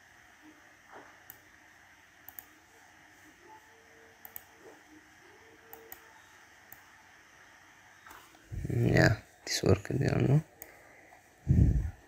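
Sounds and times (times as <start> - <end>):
quiet room hiss: 0.0 - 12.0
faint computer mouse clicks: 2.3 - 2.5, 4.2 - 4.5.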